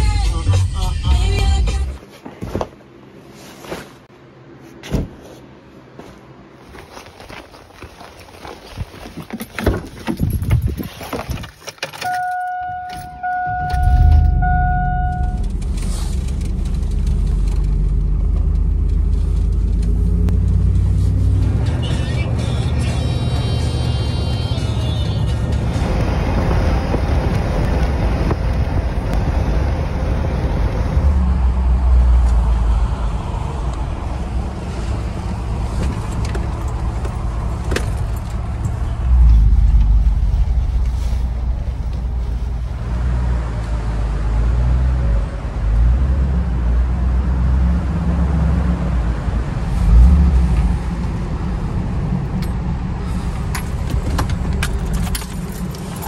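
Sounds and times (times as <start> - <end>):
truck engine and road noise: 0.0 - 56.0
ignition clicks: 11.8 - 20.0
keys jingling: 53.4 - 56.0.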